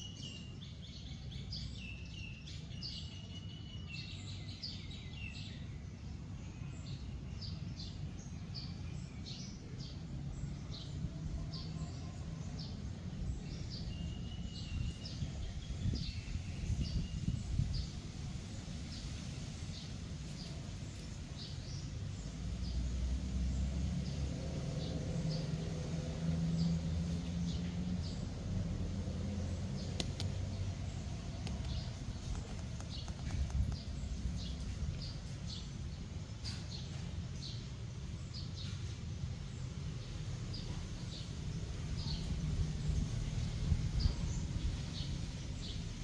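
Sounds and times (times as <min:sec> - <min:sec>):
small birds chirping: 0:00.0 - 0:46.0
steady low rumble: 0:24.0 - 0:36.4, 0:39.1 - 0:46.0.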